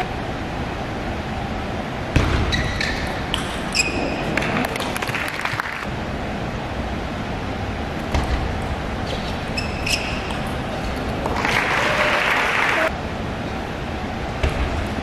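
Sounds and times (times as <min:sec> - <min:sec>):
hum of a large hall: 0:00.0 - 0:15.0
shoes squeaking on floor: 0:02.5 - 0:04.6, 0:09.0 - 0:11.1.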